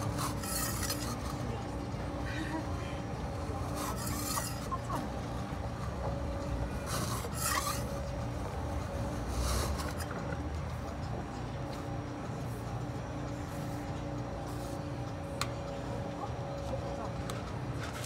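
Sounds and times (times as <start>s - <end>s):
metal spatulas scraping steel: 0.0s - 1.5s, 3.6s - 5.1s, 6.7s - 8.1s, 9.2s - 10.2s.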